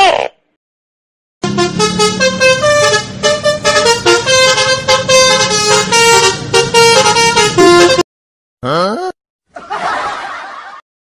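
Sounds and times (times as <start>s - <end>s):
musical vehicle horns tune: 1.4s - 8.0s.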